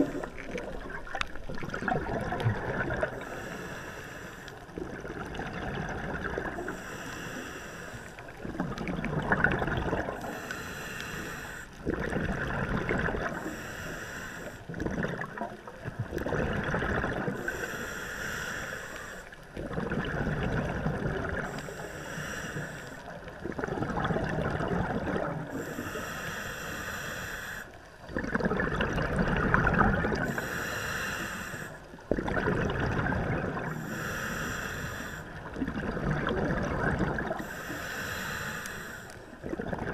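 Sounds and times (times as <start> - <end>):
exhaled bubbles: 0.0 - 3.4, 4.5 - 6.8, 8.2 - 10.4, 11.8 - 13.6, 14.7 - 17.6, 19.5 - 21.7, 23.0 - 25.9, 28.0 - 31.0, 31.6 - 34.4, 35.2 - 37.8, 39.2 - 39.9.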